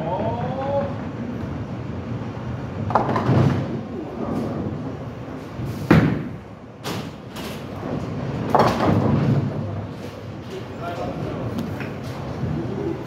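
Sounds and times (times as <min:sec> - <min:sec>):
bowling balls rolling rumble: 0:00.0 - 0:13.0
bowling pins crashing: 0:02.9 - 0:04.8, 0:05.8 - 0:09.8.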